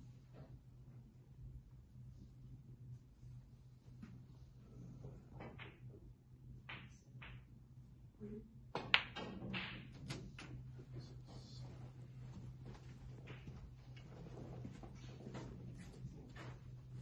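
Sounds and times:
balls knocking on table: 5.4s - 5.9s, 6.6s - 7.5s, 8.7s - 10.7s
cue ball striking ball: 6.6s - 7.5s, 8.8s - 10.2s.

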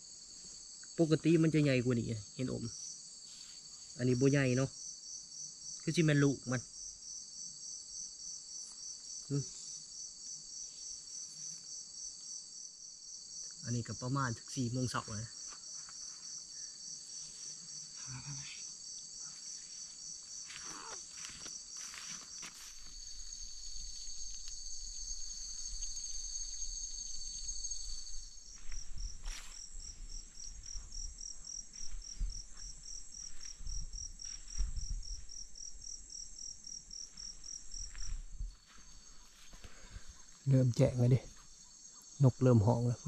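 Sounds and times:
crickets and insects trilling: 0.0s - 43.0s
low rumble on microphone: 26.7s - 35.8s.

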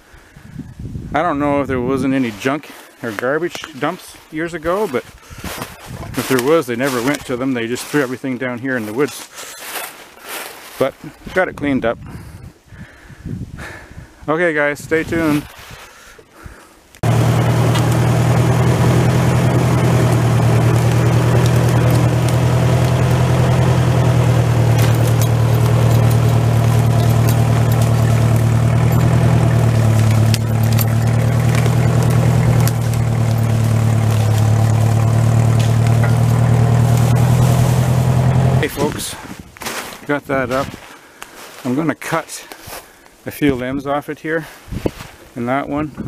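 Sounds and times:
tractor engine running under load: 17.0s - 39.0s.

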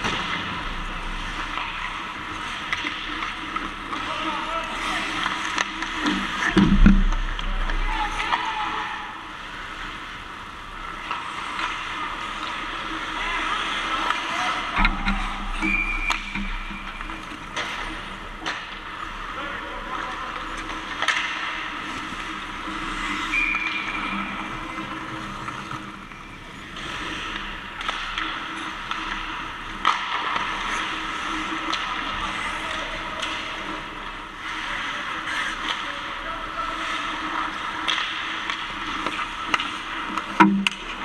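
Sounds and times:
hockey sticks clacking: 0.0s - 8.8s, 10.9s - 41.0s
skate blades scraping ice: 26.6s - 41.0s.

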